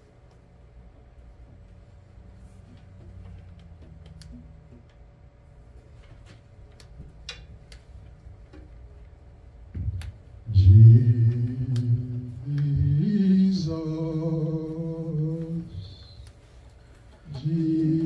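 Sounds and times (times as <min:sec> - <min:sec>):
man singing into a microphone: 0:10.5 - 0:16.2, 0:17.3 - 0:18.0.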